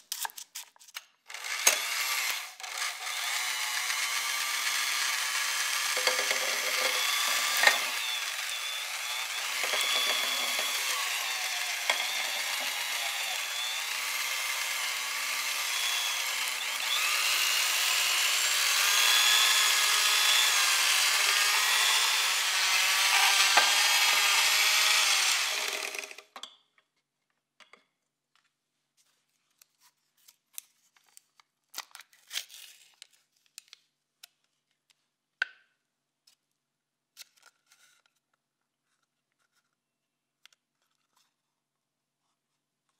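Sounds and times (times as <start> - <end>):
electric hand mixer whirring: 1.3 - 26.3.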